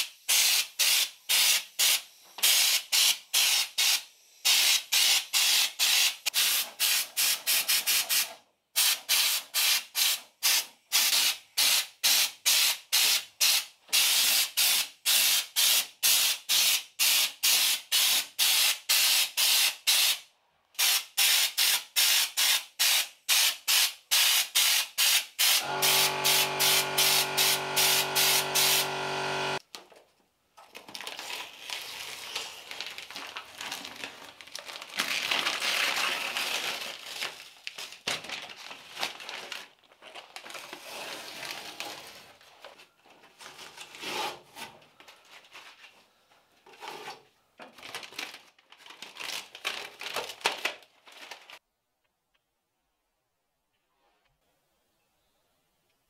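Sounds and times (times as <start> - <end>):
spray gun hissing in pulses: 24.3 - 29.6
masking paper and tape peeling: 25.4 - 29.6
steady hum: 25.6 - 29.6.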